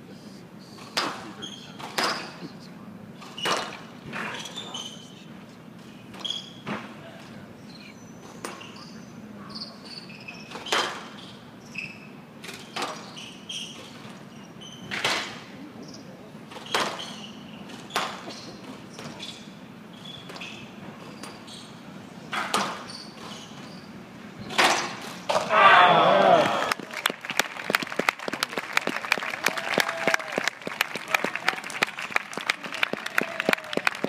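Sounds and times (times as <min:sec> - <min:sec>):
shoes squeaking on court: 0:00.8 - 0:02.4, 0:03.2 - 0:15.2, 0:15.8 - 0:25.5.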